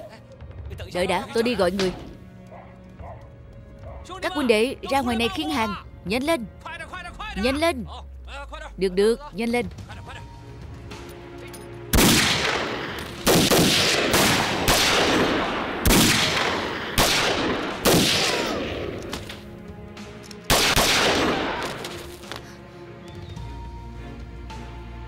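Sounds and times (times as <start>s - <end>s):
faint background music: 0.0s - 25.0s
loud sharp bangs: 11.9s - 18.9s, 20.5s - 21.9s.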